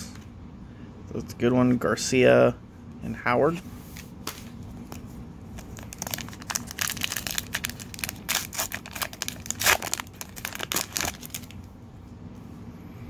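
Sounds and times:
foil wrapper tearing and crinkling: 5.6 - 11.6.

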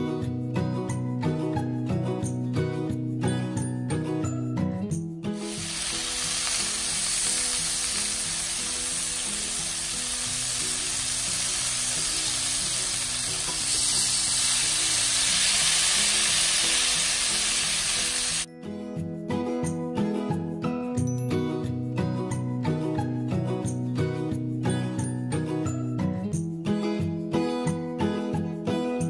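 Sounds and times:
quiet music: 0.0 - 29.0
meat sizzling on a grill pan: 5.4 - 18.5.

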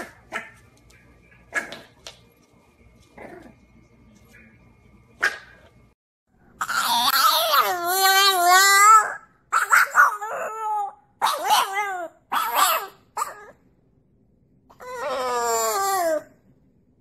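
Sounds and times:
dog howling: 14.7 - 16.4.

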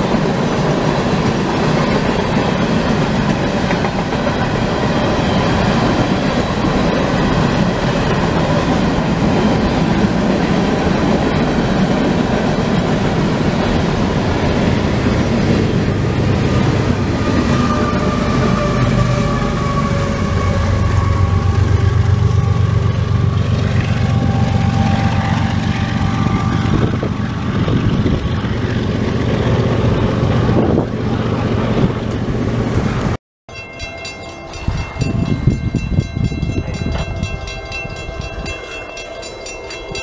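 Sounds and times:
freight train rumble: 0.0 - 40.0
crossing warning bell ringing: 4.0 - 27.7, 33.5 - 40.0.

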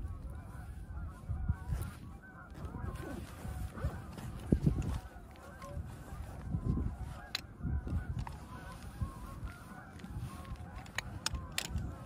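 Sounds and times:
geese honking: 0.0 - 12.0.

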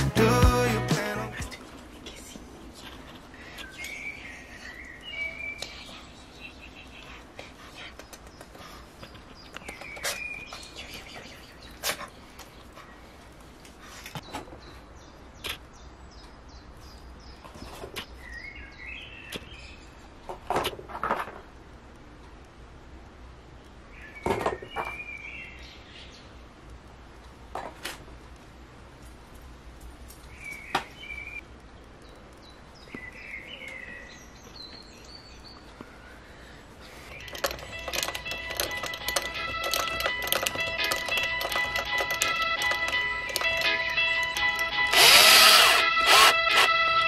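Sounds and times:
sharp knocks and clicks: 37.2 - 45.5.

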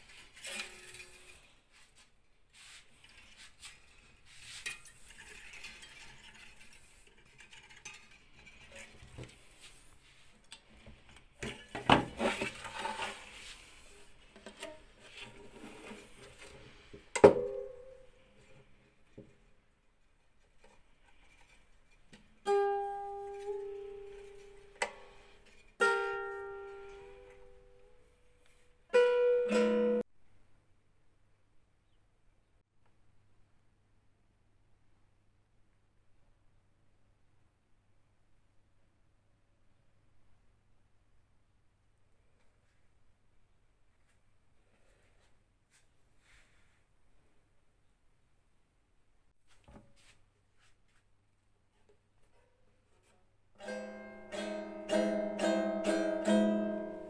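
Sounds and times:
hands rubbing on strings: 0.0 - 10.4, 12.1 - 14.3
mandolin pluck: 22.2 - 28.1, 28.9 - 30.0, 53.6 - 57.0
mandolin chords strummed: 22.4 - 28.1, 28.9 - 30.0, 53.6 - 57.0
rapid mandolin picking: 28.9 - 30.0, 53.6 - 57.0.

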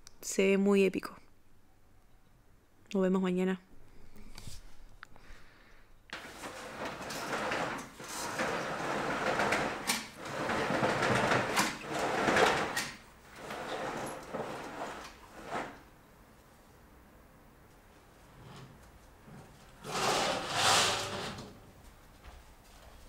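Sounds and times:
curtain fabric rustling and sliding: 6.2 - 15.9, 18.2 - 21.7.

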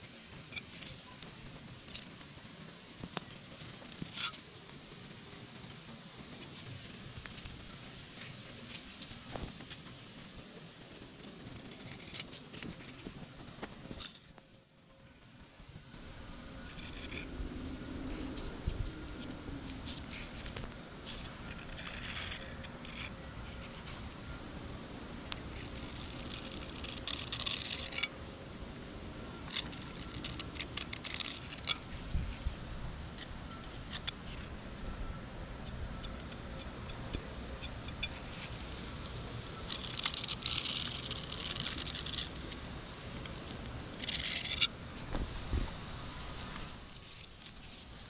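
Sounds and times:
putty knife scraping concrete: 19.7 - 23.9, 25.2 - 28.1, 29.5 - 31.9, 33.2 - 34.5, 39.6 - 42.6, 43.9 - 44.8.

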